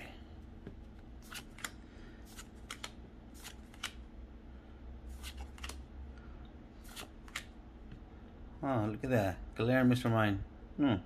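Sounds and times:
cards sliding with papery swish: 1.2 - 4.0, 5.1 - 5.8, 6.8 - 7.5.

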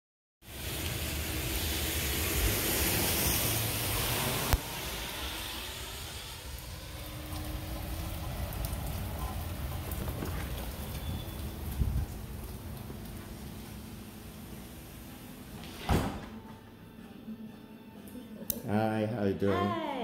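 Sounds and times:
steady rain falling: 0.4 - 15.7.

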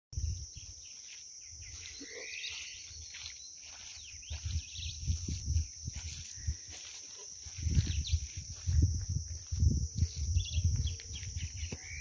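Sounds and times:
bird chirps and calls: 0.2 - 5.4, 10.0 - 12.0
high insect drone: 0.2 - 12.0.

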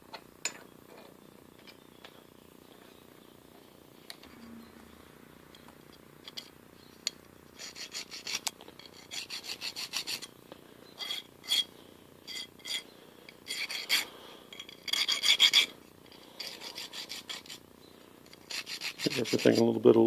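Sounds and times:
hand file on metal: 7.6 - 10.3, 13.4 - 14.1, 14.8 - 15.7, 16.4 - 17.6, 18.3 - 19.7.

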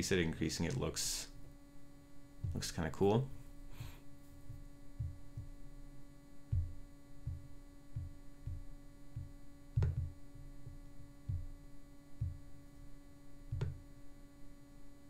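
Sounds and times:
steady electrical hum: 0.0 - 15.0
soft low thumps: 2.1 - 13.9.

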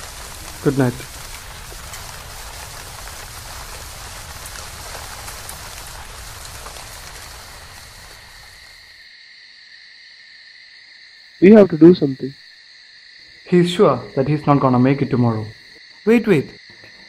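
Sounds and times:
steady rain: 0.0 - 9.1
insects trilling: 0.0 - 17.0.

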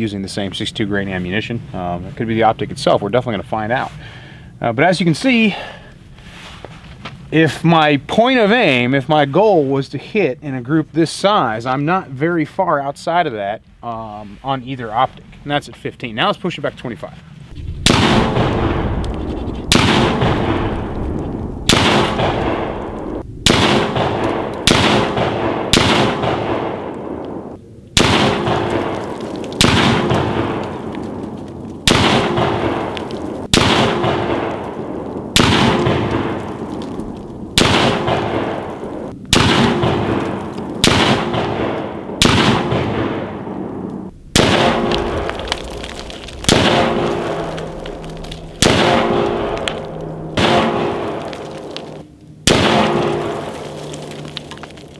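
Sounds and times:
rifle shots: 17.8 - 18.8, 19.7 - 20.7, 21.6 - 27.4, 28.0 - 30.7, 31.8 - 36.4, 37.6 - 45.2, 46.4 - 47.6, 48.6 - 53.5.

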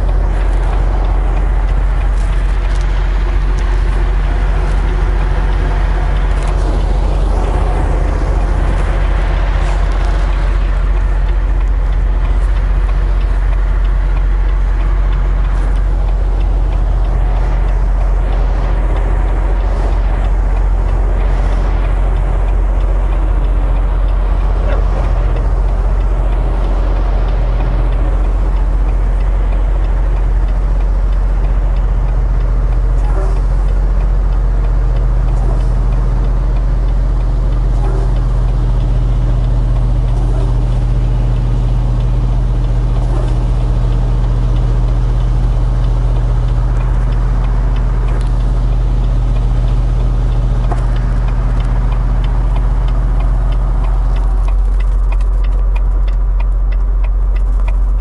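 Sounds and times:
diesel truck engine droning: 0.0 - 58.0.

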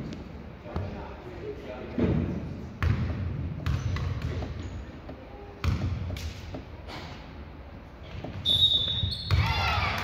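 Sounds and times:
basketball bouncing on gym floor: 2.8 - 6.7, 8.0 - 10.0.

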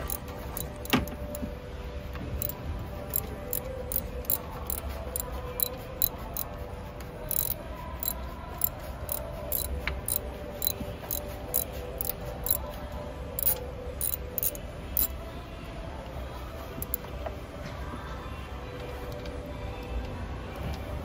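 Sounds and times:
socket ratchet clicking: 0.0 - 1.5, 2.4 - 6.5, 7.3 - 12.6, 13.4 - 15.1, 16.8 - 17.0
sharp metallic click: 7.3 - 8.2, 9.5 - 10.8, 13.4 - 15.1.

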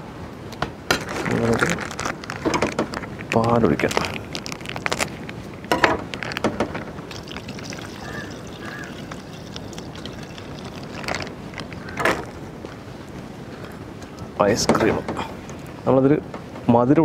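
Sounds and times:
plastic packet crinkling: 1.0 - 12.4
milk pouring into blender jar: 7.1 - 11.9.

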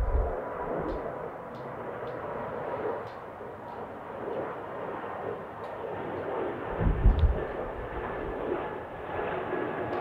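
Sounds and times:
deep low rumble: 0.0 - 0.4
jet engine roar: 0.0 - 10.0.

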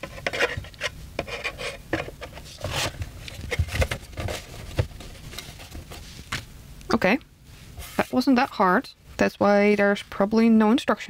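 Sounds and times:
rubbing and scraping: 0.0 - 6.4.

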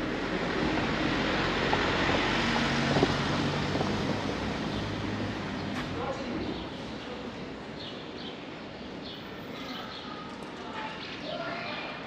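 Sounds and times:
passing vehicle with low hum: 0.0 - 7.0.

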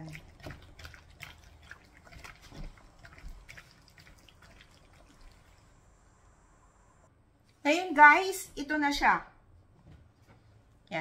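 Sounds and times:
wet squelches of meat in marinade: 0.0 - 5.7.

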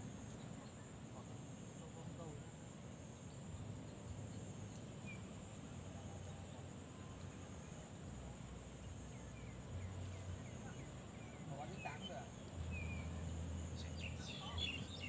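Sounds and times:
bird chirps: 9.2 - 15.0.

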